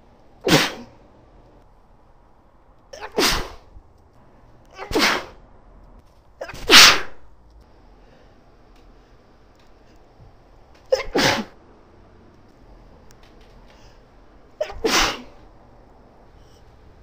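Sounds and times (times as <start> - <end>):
woman sneezing: 0.5 - 0.9, 3.0 - 3.6, 4.8 - 5.4, 6.4 - 7.2, 10.9 - 11.6, 14.6 - 15.4.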